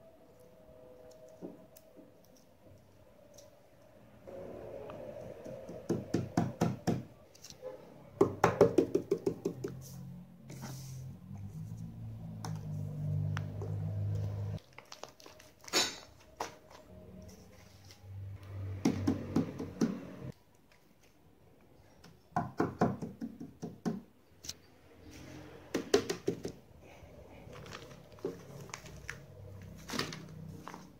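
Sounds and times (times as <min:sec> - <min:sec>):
paper squishies crinkling: 0:14.2 - 0:18.0, 0:27.3 - 0:30.9.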